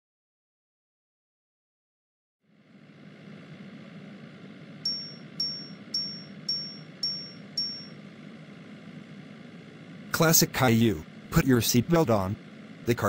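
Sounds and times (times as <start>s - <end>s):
seatbelt warning chime dings: 4.8s - 8.0s.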